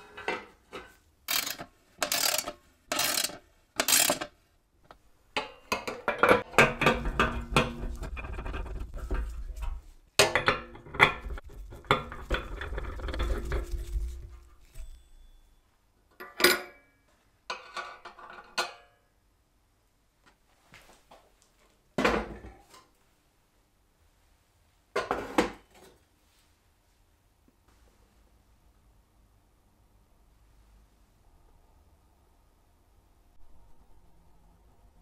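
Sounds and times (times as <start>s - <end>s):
metal stove parts clattering: 5.4s - 14.0s.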